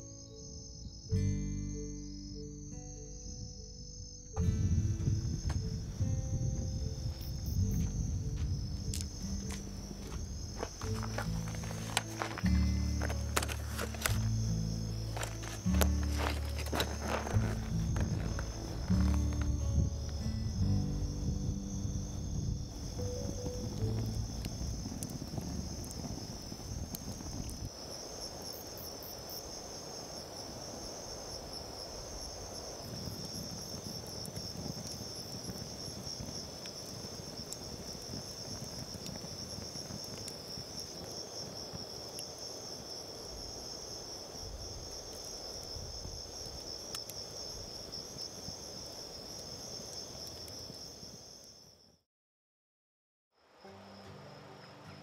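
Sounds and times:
crickets chirping: 0:00.0 - 0:52.0, 0:53.4 - 0:55.0
campfire burning and crackling: 0:04.1 - 0:51.7.

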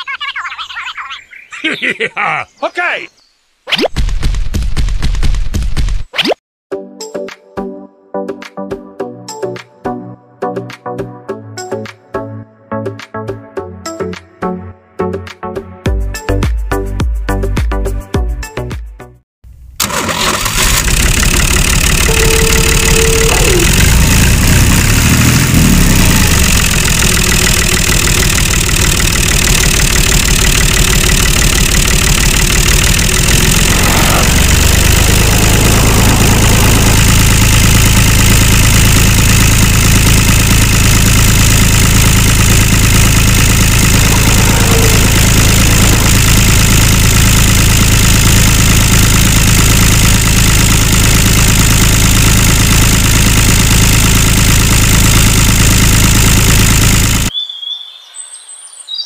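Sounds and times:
engine running: 0:19.5 - 0:57.3.

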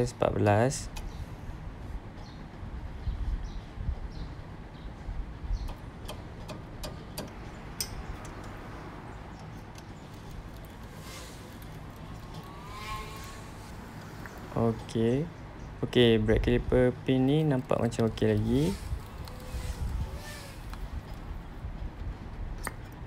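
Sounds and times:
spanner clicking on metal: 0:05.7 - 0:08.6.

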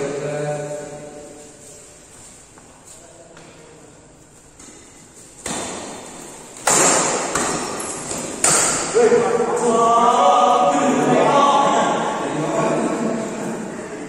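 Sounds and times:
racket hitting shuttlecock: 0:04.6 - 0:09.0.

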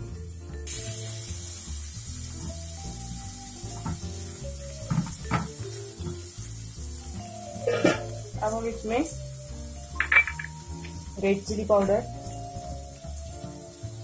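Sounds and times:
background music: 0:00.0 - 0:14.0
chicken sizzling in a frying pan: 0:00.0 - 0:14.0.

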